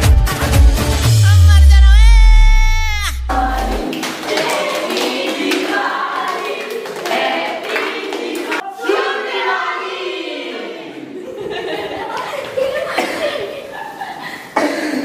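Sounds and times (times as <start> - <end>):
group singing together: 3.0 - 12.0
people clapping hands: 3.4 - 8.6.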